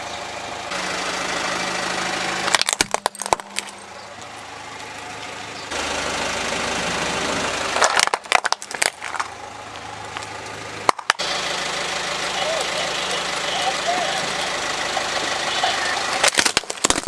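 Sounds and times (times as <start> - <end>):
car engine idling: 0.0 - 17.0
plastic toy cracking under tyre: 2.5 - 3.7, 7.8 - 9.4, 16.2 - 17.0.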